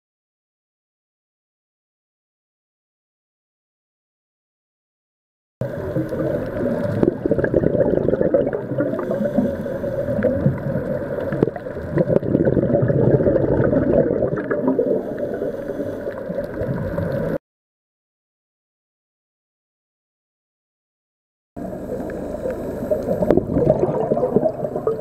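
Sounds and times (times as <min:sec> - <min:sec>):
underwater bubbling and gurgling: 0:05.6 - 0:17.4, 0:21.6 - 0:25.0.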